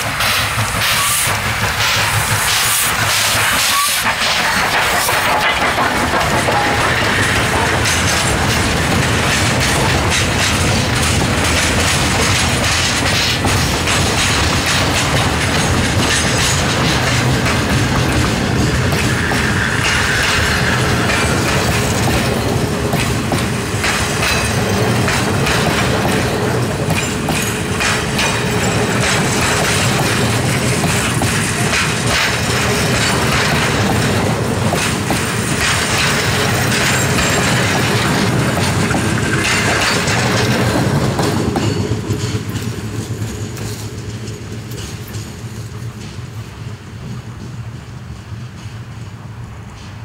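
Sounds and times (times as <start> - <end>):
train wheels clattering over rail joints: 0.0 - 50.0.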